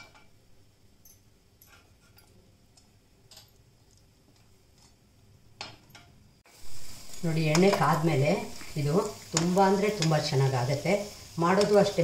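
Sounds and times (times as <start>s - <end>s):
faint ticks of frying in oil: 0.0s - 12.0s.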